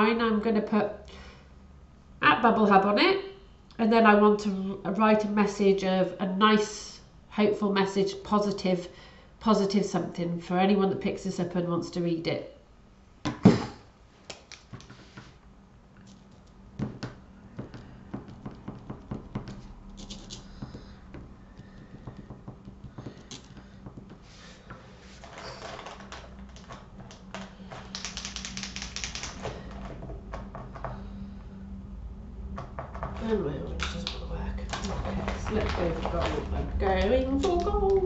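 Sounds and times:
low steady hum: 0.0 - 38.0
plastic pens clattering: 25.2 - 29.9, 34.7 - 36.7
small clicks and taps: 26.5 - 29.4.

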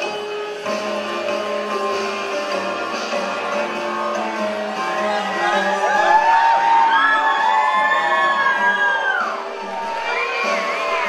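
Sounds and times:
music: 0.0 - 11.0
audience whooping and yelling: 3.6 - 11.0.

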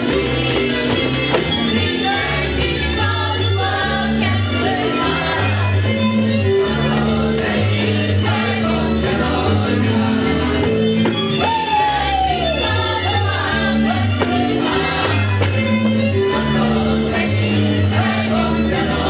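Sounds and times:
folk dance music: 0.0 - 19.0.

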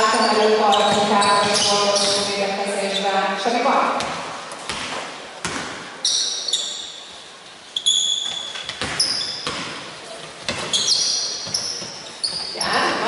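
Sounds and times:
basketball bouncing: 0.7 - 2.3, 4.0 - 5.9, 8.3 - 13.0
shoes squeaking on hardwood: 7.7 - 13.0.

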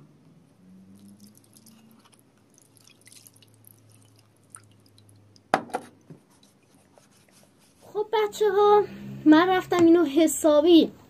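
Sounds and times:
water trickling into dish: 0.9 - 5.5.

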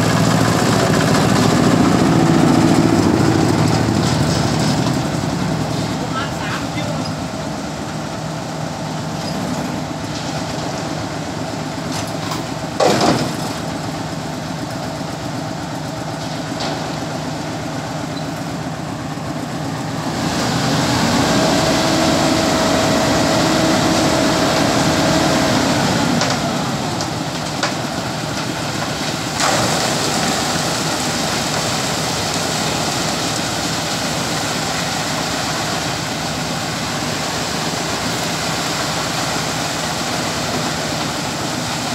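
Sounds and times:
diesel engines running: 0.0 - 41.9
concrete rushing down chute: 20.1 - 41.9.

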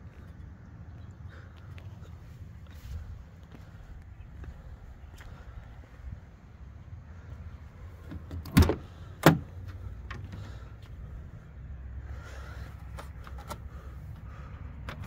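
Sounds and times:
tailgate clunking open: 8.0 - 10.6.

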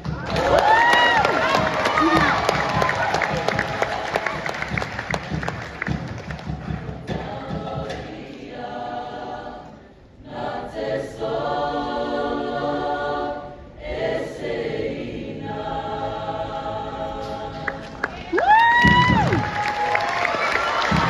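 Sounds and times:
applause: 0.2 - 7.0, 17.7 - 21.0
choir singing long chords: 0.7 - 6.0, 6.8 - 18.2.

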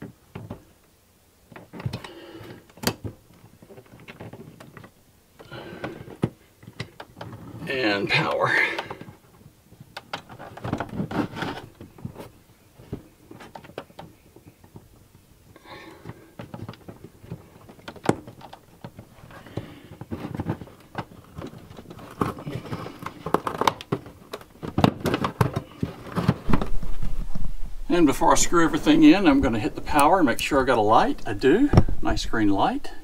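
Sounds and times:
hands handling cables and plastic: 1.5 - 27.5.

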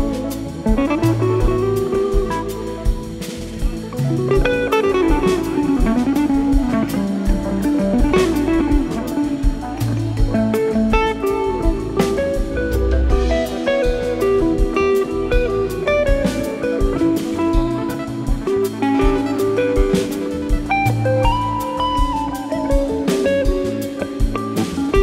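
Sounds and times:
drum kit hits: 0.0 - 25.0
low bass notes: 0.0 - 25.0.

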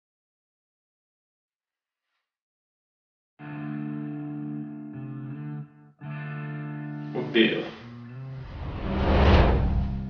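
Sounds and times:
deep rumbling whoosh: 8.4 - 10.0.

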